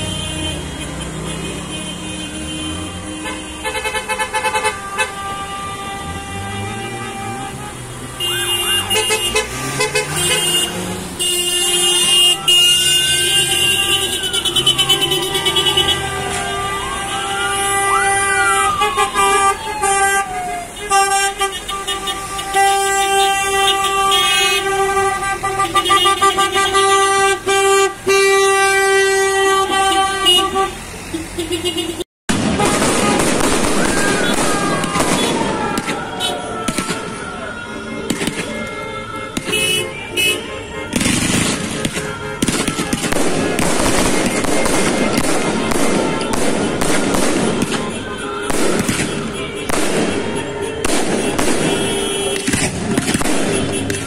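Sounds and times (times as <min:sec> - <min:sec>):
vehicle horns honking: 0:00.0 - 0:54.0
emergency siren wailing: 0:04.7 - 0:25.3, 0:32.5 - 0:53.2.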